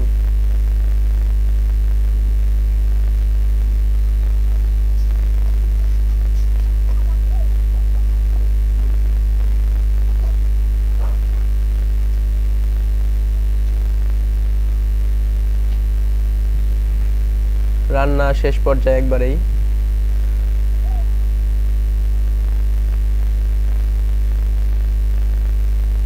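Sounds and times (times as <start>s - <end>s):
loud low hum: 0.0s - 26.0s.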